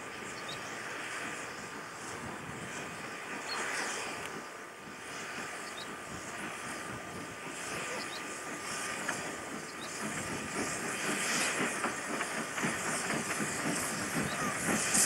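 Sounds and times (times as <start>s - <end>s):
steam hissing: 0.0s - 15.0s
steam locomotive exhaust beats: 0.0s - 15.0s.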